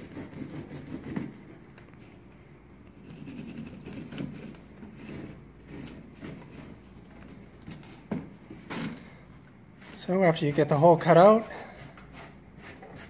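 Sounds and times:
saw rasping through ceiling tile: 0.0s - 1.7s, 3.0s - 7.9s, 9.8s - 13.0s.

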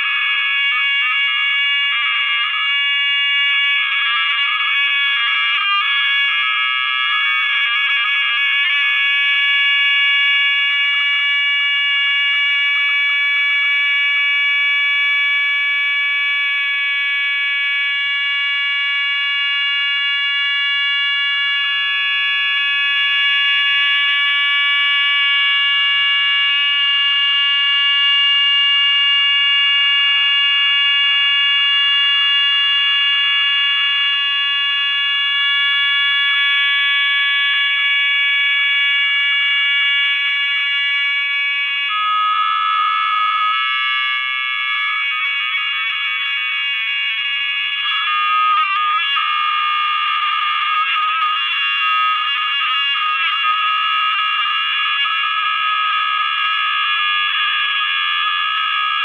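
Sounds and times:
electronic feedback whine: 0.0s - 59.0s.

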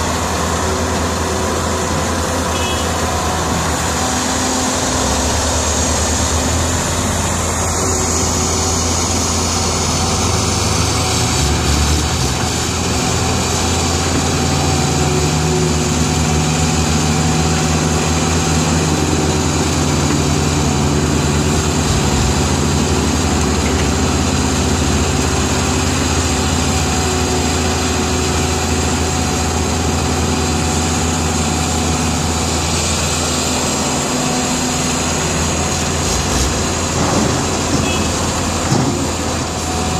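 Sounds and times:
dump trucks driving: 0.0s - 39.9s
excavator engine running: 0.0s - 39.9s.

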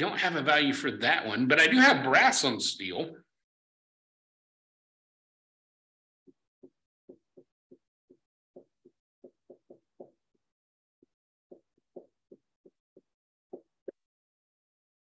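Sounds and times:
marker writing on whiteboard: 6.3s - 10.5s, 11.5s - 14.0s.

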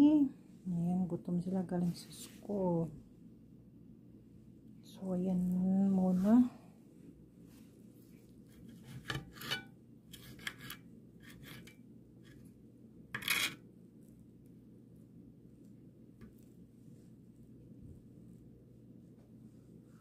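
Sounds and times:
knife scraping cast iron skillet: 8.6s - 11.8s, 13.2s - 13.6s.

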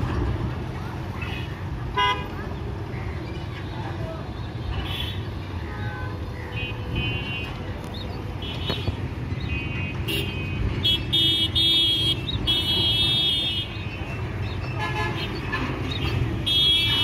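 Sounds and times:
low rumble of engines: 0.0s - 17.0s
vehicle horns tooting: 1.3s - 2.4s, 4.7s - 7.7s, 8.4s - 17.0s.

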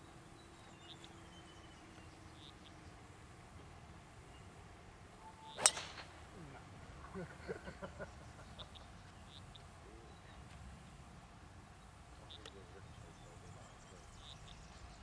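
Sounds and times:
golf club striking ball: 5.4s - 6.3s.

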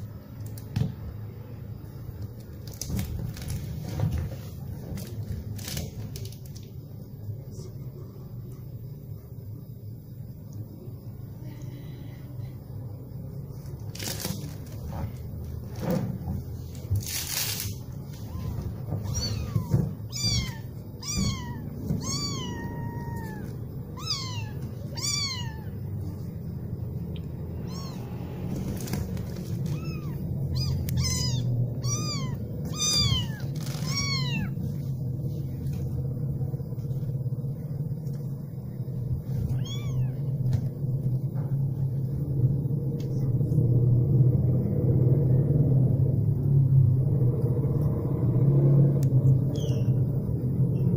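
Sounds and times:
steady low rumble: 14.6s - 50.9s
kittens mewing: 18.2s - 26.1s, 27.4s - 34.9s, 39.4s - 40.4s.

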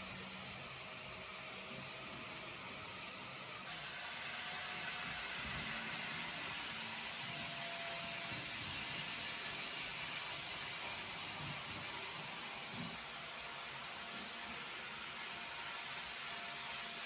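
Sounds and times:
model trains running on track: 0.0s - 17.0s.

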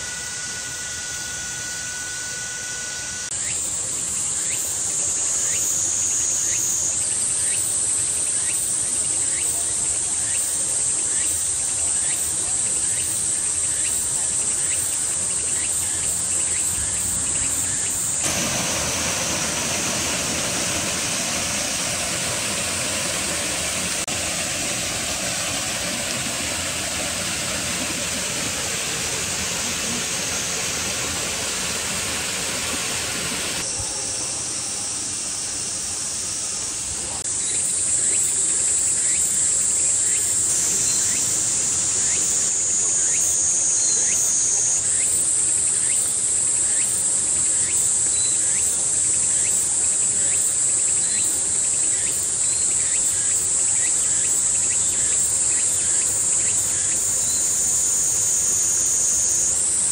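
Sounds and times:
high-pitched insect drone: 0.0s - 59.9s
low hiss: 16.8s - 37.2s.

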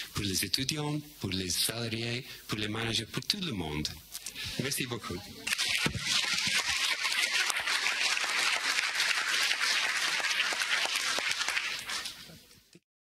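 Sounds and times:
audience applauding: 5.5s - 12.2s.

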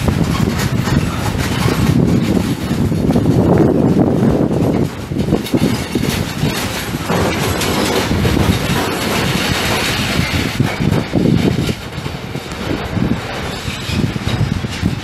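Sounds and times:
freight train rumbling: 0.0s - 15.0s
wheels clacking over rail joints: 0.0s - 15.0s.

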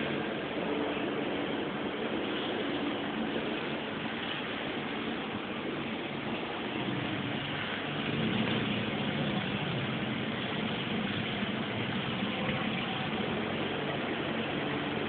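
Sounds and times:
pool machinery hum and rush: 0.0s - 15.0s.

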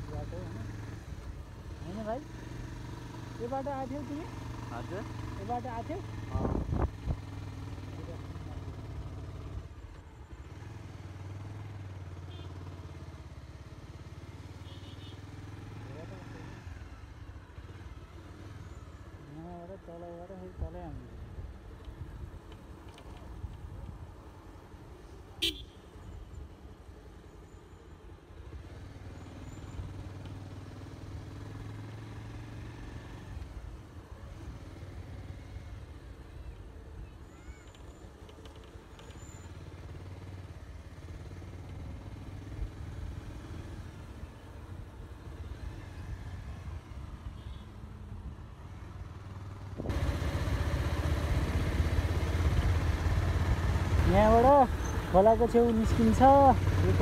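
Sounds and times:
motorcycle engine drone: 0.0s - 57.0s.

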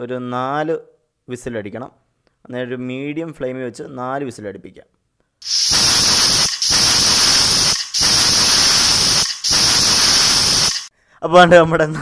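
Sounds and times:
pressure cooker whistling: 5.4s - 10.9s.

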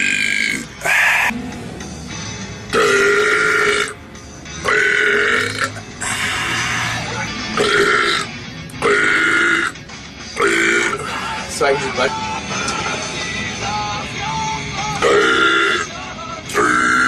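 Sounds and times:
man burping: 0.0s - 1.3s, 2.7s - 4.0s, 4.6s - 7.0s, 7.6s - 9.8s, 10.4s - 11.2s, 15.0s - 17.0s.

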